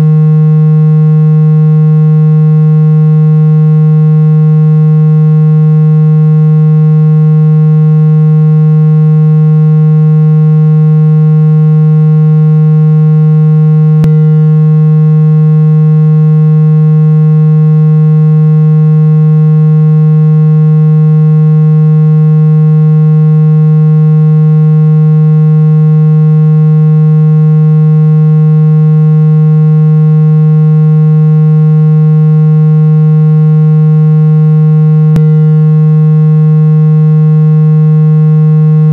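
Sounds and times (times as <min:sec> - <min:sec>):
low buzzy synthesized tone: 0:00.0 - 0:38.9.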